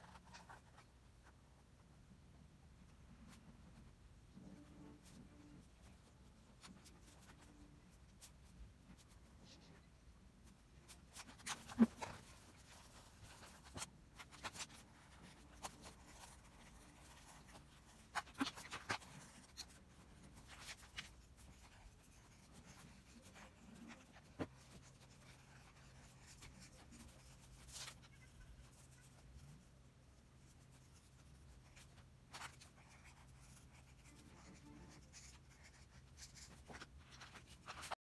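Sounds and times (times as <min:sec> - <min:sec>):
faint low hum: 0:00.0 - 0:38.0
pen scratching on paper: 0:11.1 - 0:29.5, 0:30.7 - 0:38.0.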